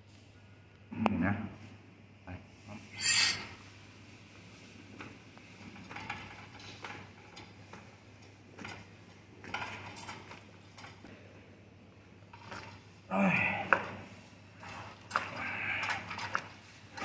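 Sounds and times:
drain line clicking and scraping: 0:14.6 - 0:17.0.

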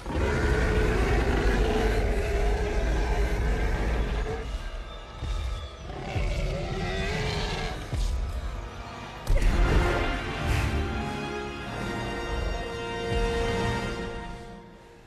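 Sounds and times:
deep dinosaur roar: 0:00.0 - 0:04.6, 0:05.8 - 0:08.0
dinosaur growl: 0:00.0 - 0:04.6, 0:05.8 - 0:08.0.

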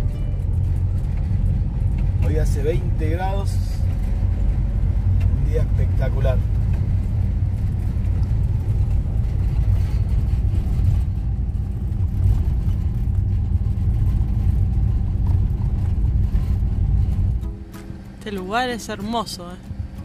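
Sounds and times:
van engine and road noise: 0:00.0 - 0:20.0.

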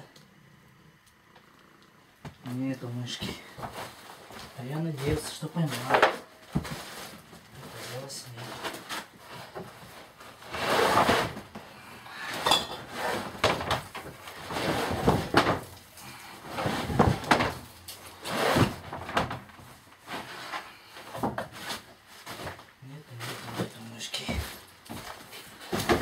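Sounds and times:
stiff sheet rustling and flapping: 0:03.0 - 0:11.6, 0:12.9 - 0:20.6.

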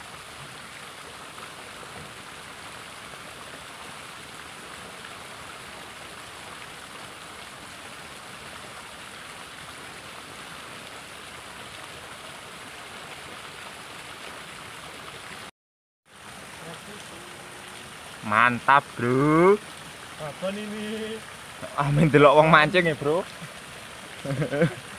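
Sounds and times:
river current rushing: 0:16.1 - 0:24.9.

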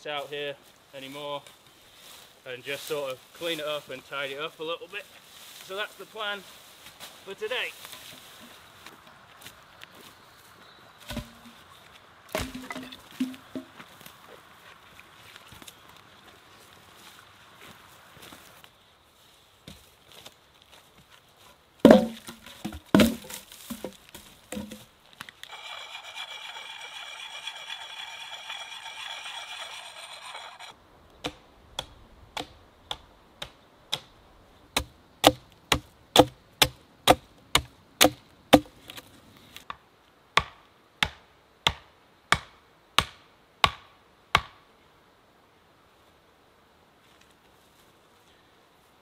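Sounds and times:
wooden poles clunking onto logs: 0:11.0 - 0:11.6, 0:12.3 - 0:13.9, 0:21.8 - 0:25.6, 0:34.8 - 0:39.1
axe chopping tree: 0:11.1 - 0:11.5, 0:12.3 - 0:13.7, 0:21.9 - 0:24.8, 0:31.2 - 0:34.1, 0:34.8 - 0:38.8, 0:40.4 - 0:44.6.

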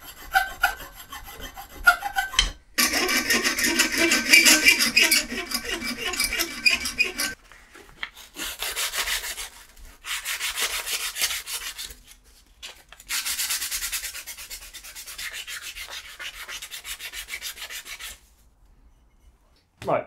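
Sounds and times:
hand-sanding metal edges: 0:00.0 - 0:07.4, 0:13.1 - 0:18.2.

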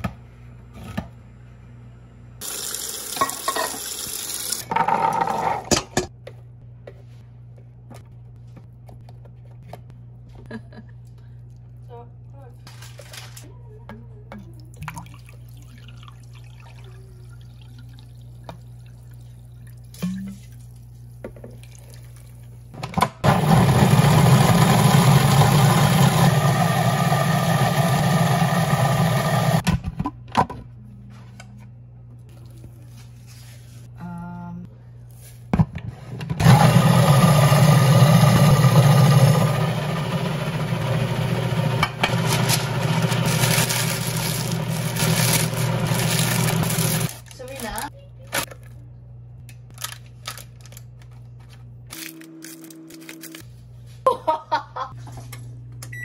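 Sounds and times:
parchment paper rustling: 0:12.7 - 0:13.5
food processor running: 0:23.2 - 0:29.6, 0:36.4 - 0:47.2.

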